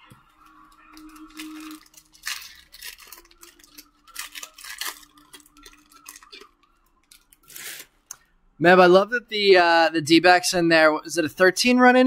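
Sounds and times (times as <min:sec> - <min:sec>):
trading cards rustling: 0:00.5 - 0:08.1
cards sliding scrapes: 0:07.4 - 0:07.9.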